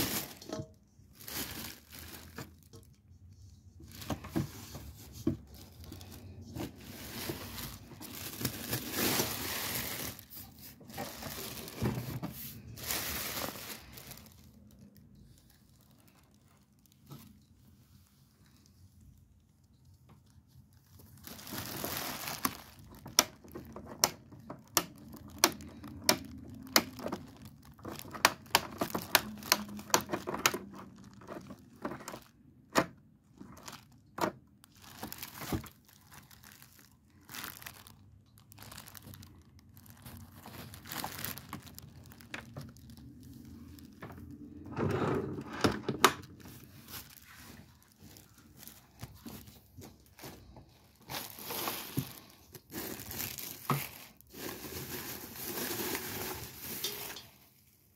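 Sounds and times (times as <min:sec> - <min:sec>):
plastic wrapping crinkling: 0:00.0 - 0:44.6, 0:46.0 - 0:57.9.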